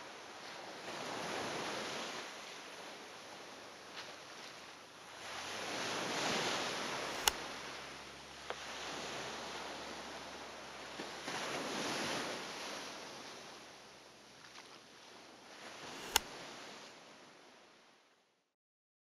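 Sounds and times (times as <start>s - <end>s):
rushing surf: 0.0s - 17.0s
sharp click: 7.0s - 8.6s, 15.9s - 16.3s.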